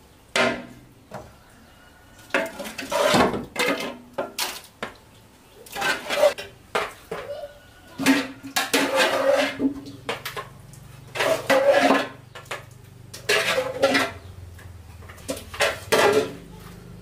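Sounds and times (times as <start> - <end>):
metal scoop scraping a metal pot: 2.3 - 4.0, 5.7 - 6.5, 7.9 - 10.0, 11.0 - 12.3, 13.2 - 14.4, 15.2 - 16.6.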